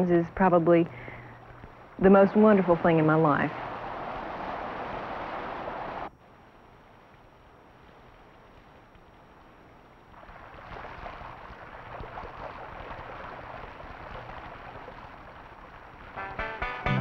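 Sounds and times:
stream water splashing over rocks: 0:00.4 - 0:06.1, 0:10.1 - 0:16.4
plucked-string music: 0:16.2 - 0:17.0.

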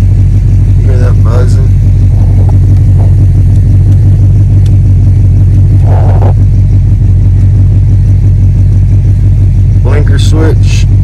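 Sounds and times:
low electrical buzzing: 0:00.0 - 0:11.0
truck engine idling: 0:00.0 - 0:11.0.

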